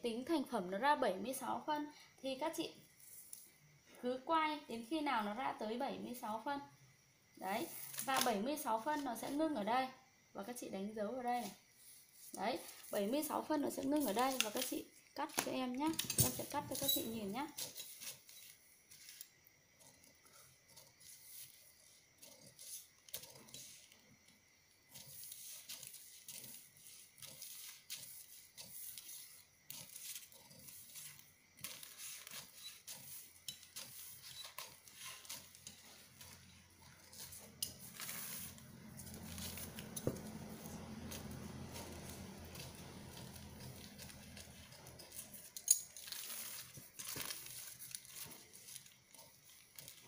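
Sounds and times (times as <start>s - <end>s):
shears snipping paper: 14.0s - 14.8s, 37.0s - 50.0s.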